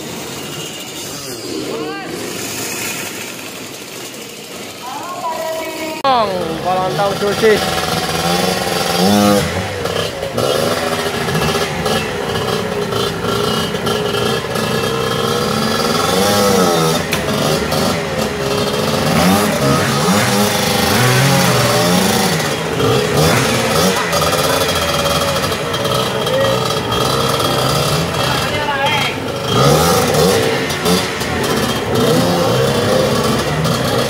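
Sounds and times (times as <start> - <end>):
dirt bike engine revving: 0.0 - 34.0.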